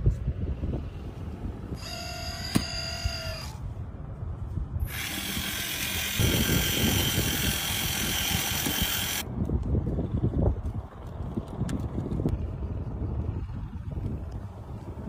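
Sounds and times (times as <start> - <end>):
wind buffeting microphone: 0.0 - 15.0
loud whirring hiss: 4.8 - 9.2.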